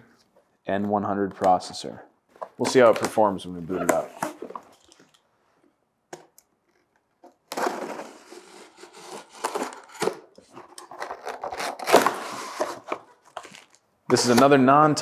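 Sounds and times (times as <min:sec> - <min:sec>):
cardboard scraping and rustling: 0:07.5 - 0:13.6.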